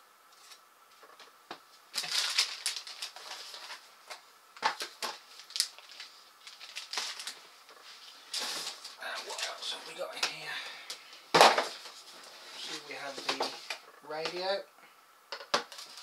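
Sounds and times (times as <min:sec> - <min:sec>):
cardboard rustling and scraping: 0:02.0 - 0:03.9, 0:11.4 - 0:13.8.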